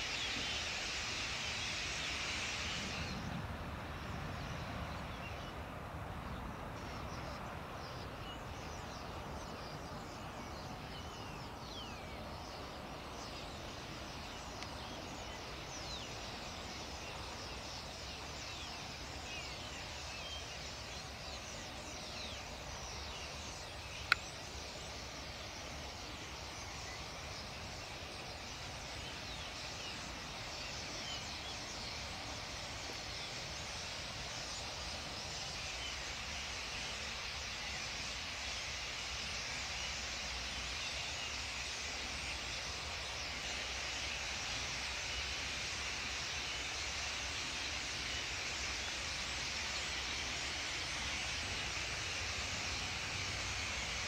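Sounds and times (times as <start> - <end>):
sharp click: 24.0 - 24.3.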